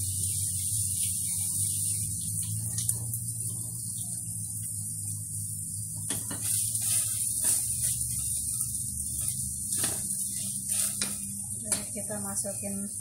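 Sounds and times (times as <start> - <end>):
low hum: 0.0 - 13.0
onion sizzling in oil: 0.0 - 13.0
utensils knocking against pot: 10.9 - 12.0.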